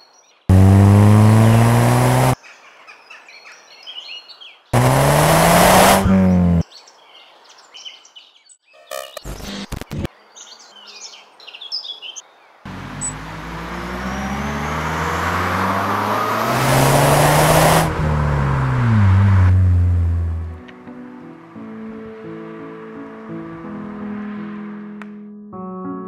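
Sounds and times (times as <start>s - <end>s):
birds chirping: 0.0s - 17.8s
car engine driving by: 0.5s - 2.4s, 4.8s - 6.6s, 12.7s - 20.7s.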